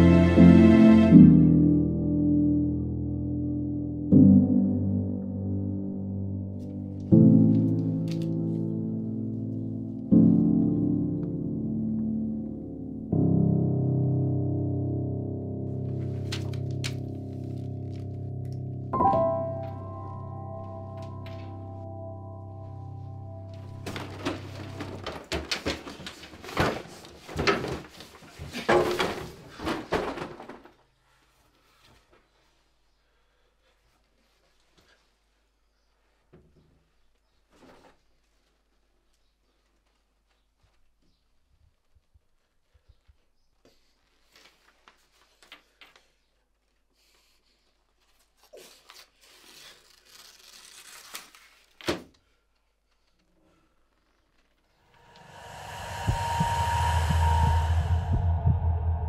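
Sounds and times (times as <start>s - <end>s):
paper rustling: 16.0s - 18.2s, 23.6s - 30.8s, 47.6s - 52.1s
paper tearing: 48.5s - 52.0s.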